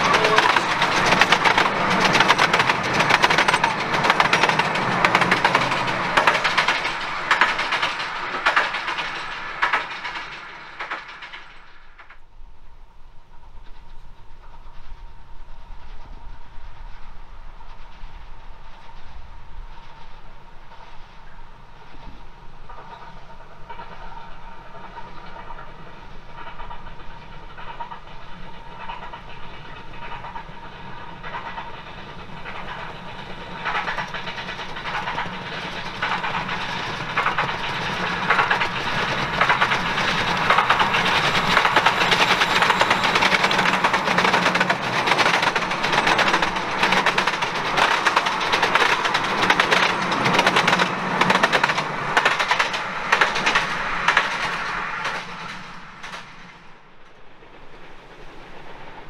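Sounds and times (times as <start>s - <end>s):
train wheels clattering on rails: 0.0s - 12.3s, 13.1s - 59.0s.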